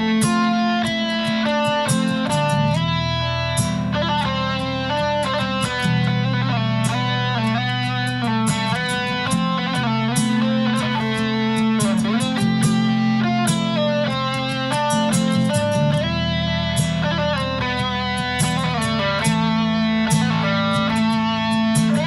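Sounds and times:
nylon-string guitar melody: 0.0 - 22.0.

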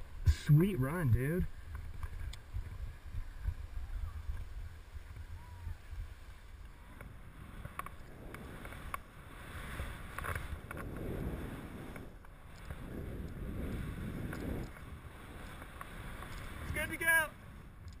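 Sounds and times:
wind rumble on microphone: 0.0 - 18.0
skis hissing through snow: 7.3 - 17.6.

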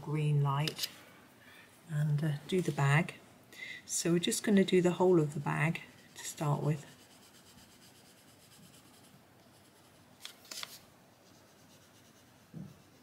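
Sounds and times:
pencil scratching on paper: 5.7 - 10.0, 11.1 - 13.0.

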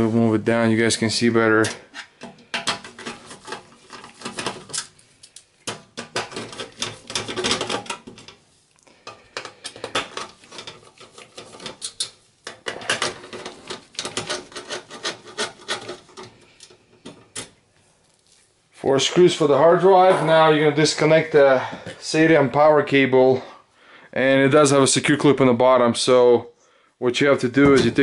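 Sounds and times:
metal scraping: 9.4 - 17.4.

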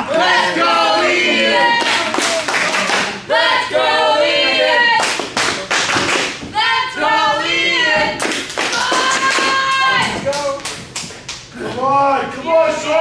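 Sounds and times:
people singing: 0.0 - 5.1, 6.5 - 10.2
sharp hand claps: 5.0 - 6.4, 8.2 - 11.5.

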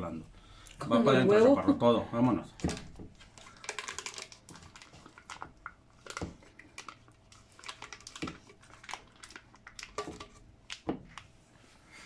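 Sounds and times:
foil wrapper crinkling: 2.6 - 11.3.

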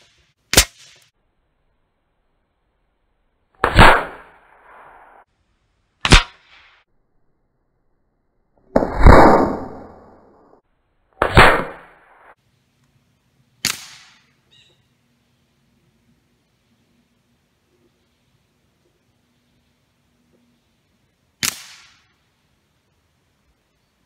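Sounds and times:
air rifle shots: 3.6 - 5.0, 6.0 - 6.6, 11.2 - 12.4, 13.6 - 14.3, 21.4 - 22.1.

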